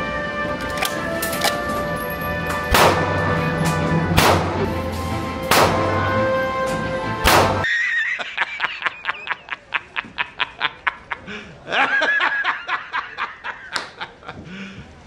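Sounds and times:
background music: 0.0 - 7.7
shotgun shots: 2.7 - 3.2, 4.2 - 4.6, 5.5 - 6.0, 7.2 - 7.6
man cackling laugh: 7.6 - 14.5.

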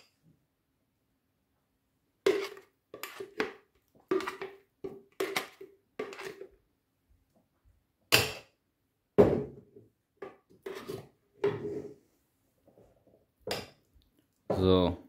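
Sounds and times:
spoon scraping a blender jar: 2.2 - 6.5, 10.6 - 11.9.

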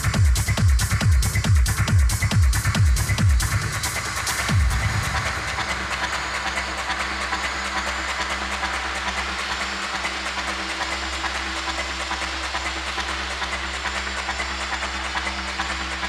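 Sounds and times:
electronic dance music: 0.0 - 16.0.

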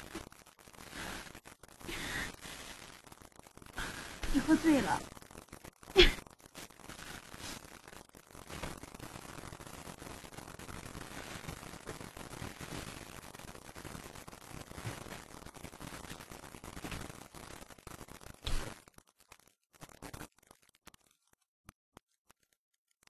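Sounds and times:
faint steady hiss: 0.0 - 20.3.

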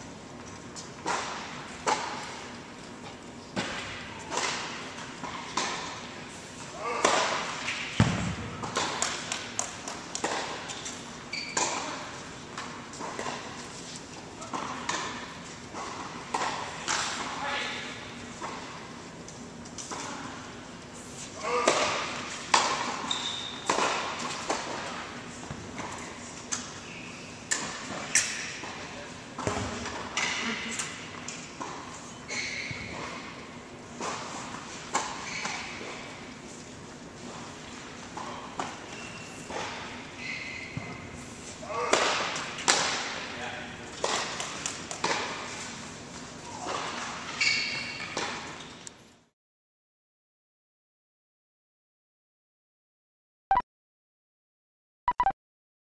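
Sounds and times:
ball bouncing on hard court: 7.0 - 10.6, 29.4 - 30.3.

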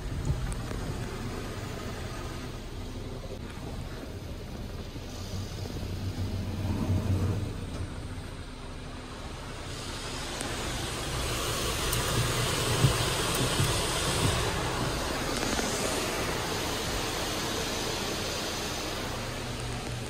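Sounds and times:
water spray hitting car: 9.2 - 20.0.

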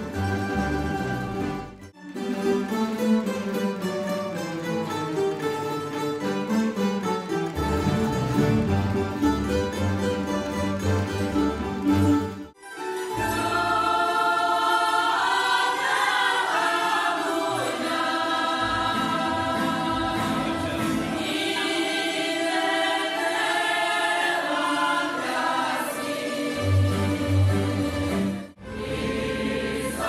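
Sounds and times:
plucked string ensemble: 0.0 - 30.0
mixed choir singing held chords: 13.1 - 30.0.

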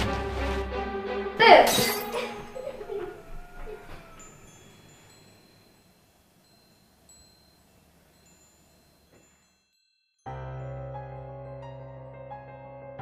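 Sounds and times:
high chime tones: 4.0 - 10.3.

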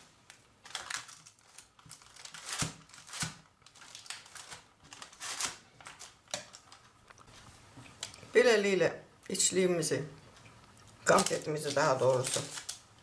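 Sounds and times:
paper lining crinkling: 0.3 - 7.4, 11.0 - 13.0.

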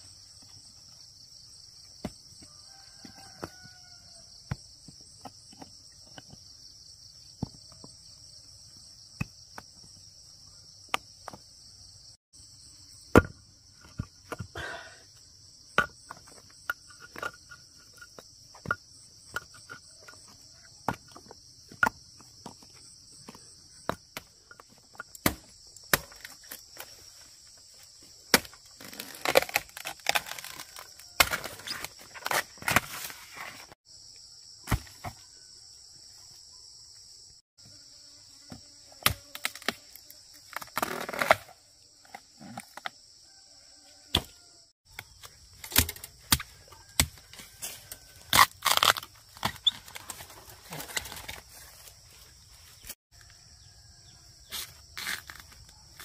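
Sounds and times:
crickets chirping: 0.0 - 56.0
rustling in dry bamboo litter: 28.7 - 33.8, 45.2 - 53.0.

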